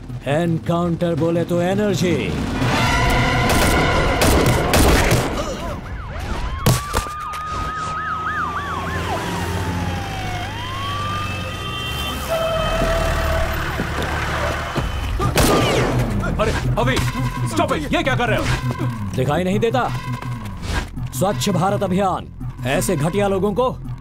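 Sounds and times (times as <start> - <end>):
police sirens wailing and yelping: 5.2 - 24.0.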